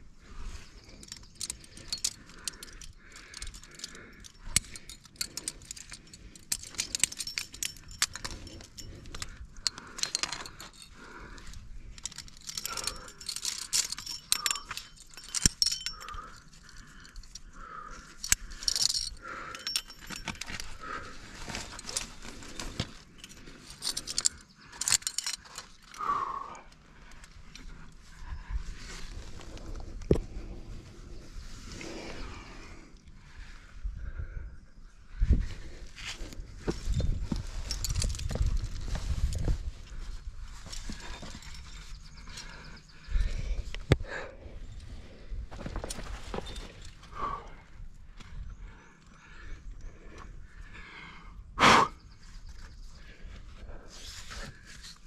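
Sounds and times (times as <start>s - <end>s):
metal climbing gear jingling: 0.2s - 33.2s, 35.1s - 51.3s, 52.1s - 55.0s.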